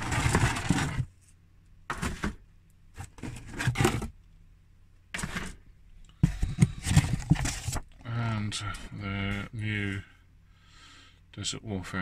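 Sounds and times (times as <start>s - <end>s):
plastic clattering and rustling: 0.0s - 1.2s, 1.9s - 4.2s, 5.1s - 5.6s, 6.2s - 8.1s.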